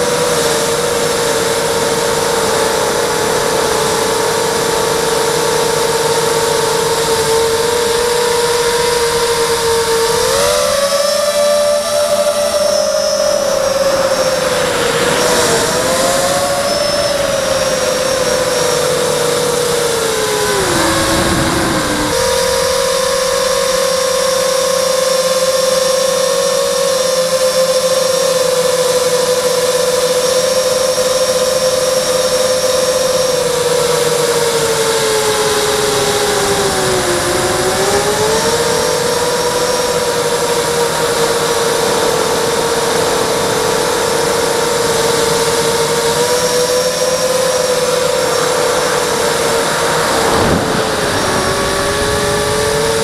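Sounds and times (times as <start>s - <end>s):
drone motors whining: 0.0s - 53.0s
rushing air: 12.2s - 24.6s, 47.7s - 53.0s.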